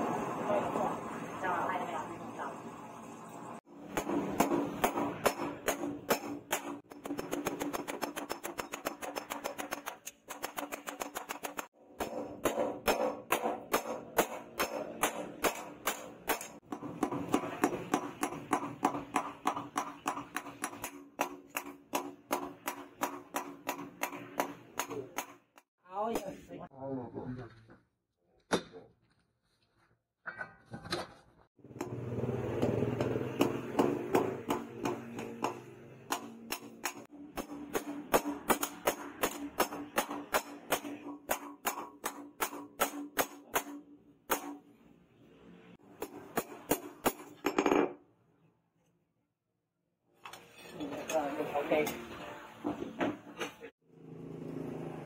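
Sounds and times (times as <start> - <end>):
hammer striking hot steel: 3.7 - 26.2, 32.6 - 44.6.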